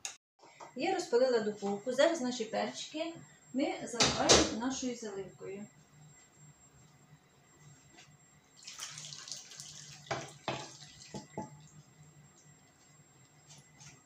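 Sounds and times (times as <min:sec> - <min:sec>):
sauce pouring and splashing: 0:08.6 - 0:11.6.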